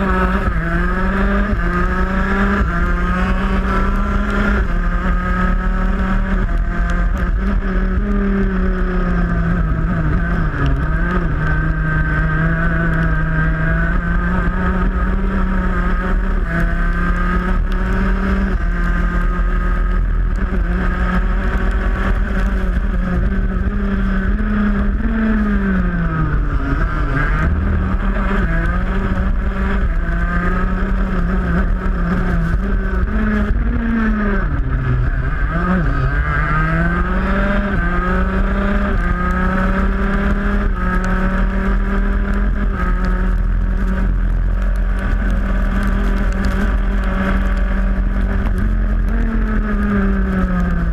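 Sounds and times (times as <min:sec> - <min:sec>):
kart engine running hard: 0:00.0 - 0:50.9
low wind rumble: 0:00.0 - 0:50.9.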